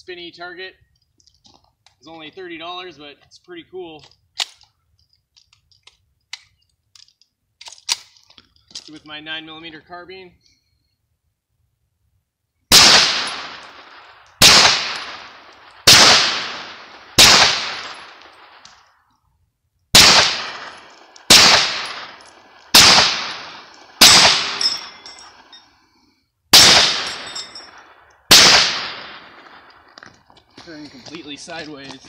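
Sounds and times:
gunshots with long echo: 0:12.7 - 0:18.8, 0:19.9 - 0:25.5, 0:26.5 - 0:29.9.

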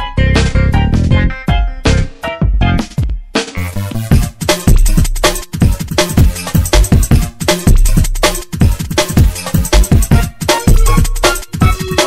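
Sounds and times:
music with fast drum beat: 0:00.0 - 0:12.0.

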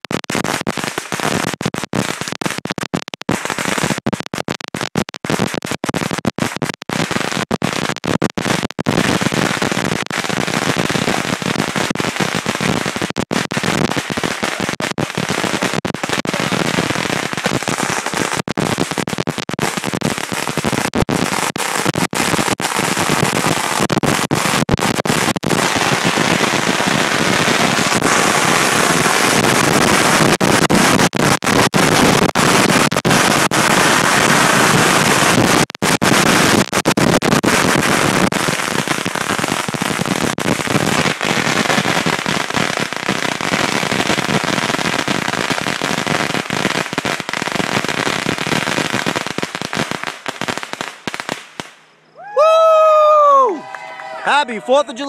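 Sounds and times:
firecrackers crackling: 0:00.0 - 0:55.0.

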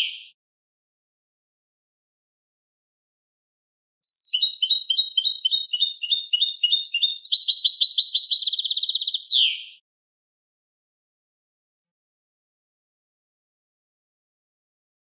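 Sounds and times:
goldfinch singing: 0:04.0 - 0:09.8.

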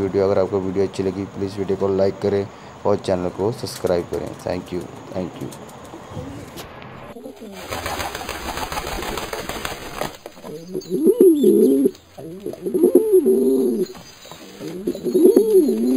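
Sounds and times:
pigeons cooing: 0:05.8 - 0:15.9.

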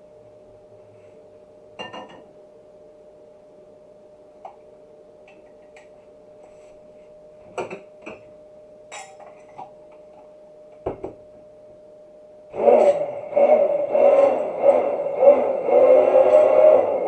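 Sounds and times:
faint steady hum: 0:00.0 - 0:17.0
glass jar and spoons clinking: 0:08.9 - 0:09.7.

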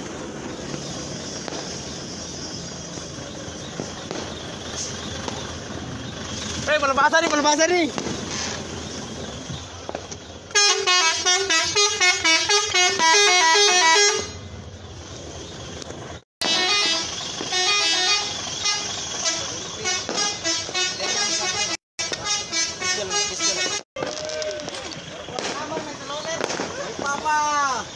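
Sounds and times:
multi-tone truck horns playing tunes: 0:10.5 - 0:14.5, 0:16.4 - 0:23.8.

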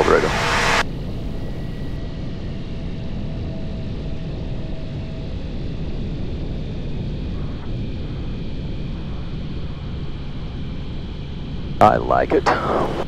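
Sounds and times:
light aircraft engine drone: 0:00.0 - 0:13.0.

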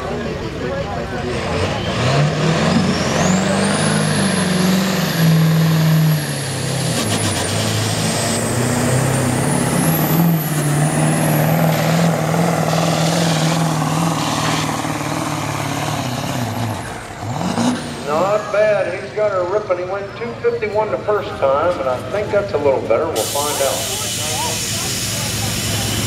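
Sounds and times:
diesel engine at full throttle: 0:00.0 - 0:26.0.

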